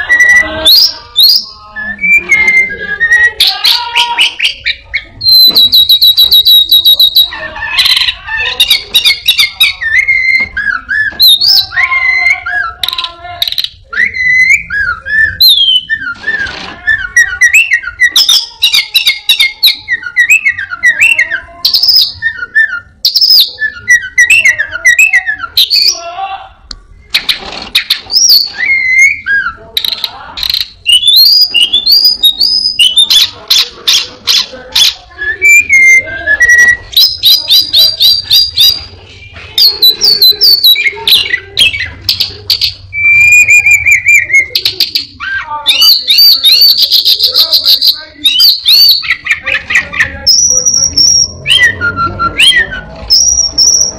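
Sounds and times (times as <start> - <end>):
thrush singing varied song: 0.0 - 26.3.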